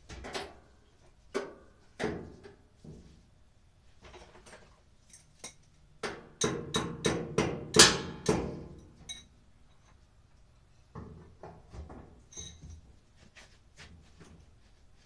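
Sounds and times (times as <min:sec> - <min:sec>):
sharp metallic knocks: 0:06.0 - 0:08.6.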